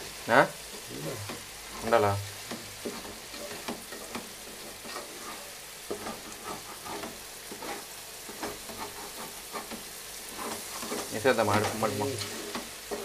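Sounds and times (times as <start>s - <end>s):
food sizzling in a pot: 0.0s - 13.0s
spoon scraping a pot: 2.8s - 13.0s.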